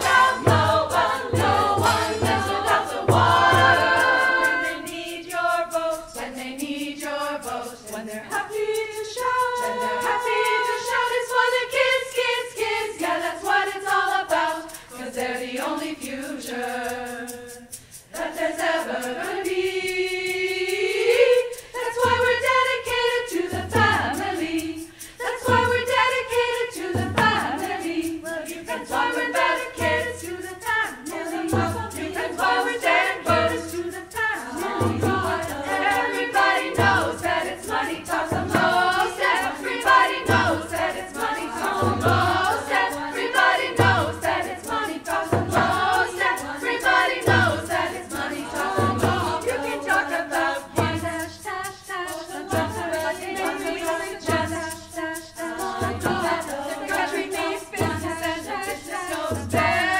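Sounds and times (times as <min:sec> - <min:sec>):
frame drum slow beat: 0:00.0 - 0:04.8
women's choir singing in harmony: 0:00.0 - 0:59.9.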